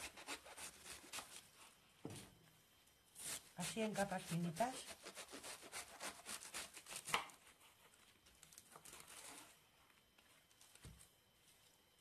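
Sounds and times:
knife slicing lettuce: 0.0 - 1.4, 3.2 - 7.6.

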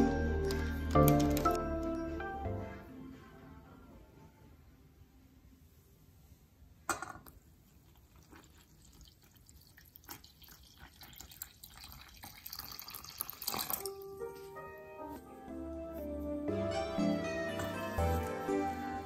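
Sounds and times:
water pouring into flour: 7.7 - 14.0.

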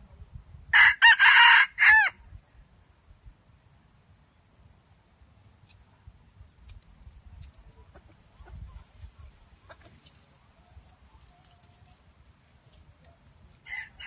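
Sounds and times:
junglefowl clucking: 7.4 - 12.0.

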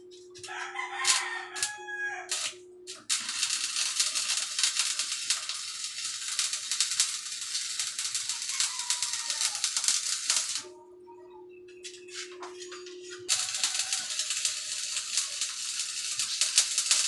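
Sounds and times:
arc welding crackling: 0.0 - 10.7, 11.8 - 17.0
faint steady hum: 2.4 - 3.2.

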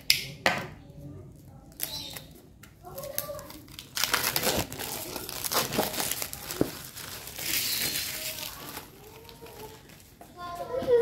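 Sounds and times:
plastic packaging crinkling: 1.7 - 10.5.

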